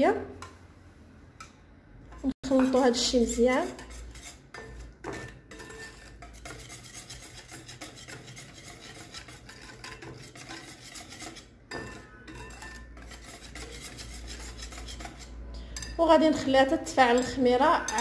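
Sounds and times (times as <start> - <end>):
whisk beating batter in glass bowl: 2.5 - 15.9.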